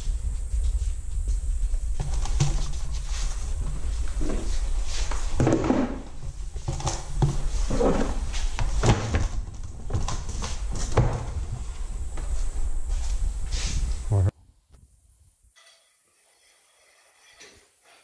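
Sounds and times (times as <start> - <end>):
low rumble: 0.0 - 5.3, 11.4 - 14.3.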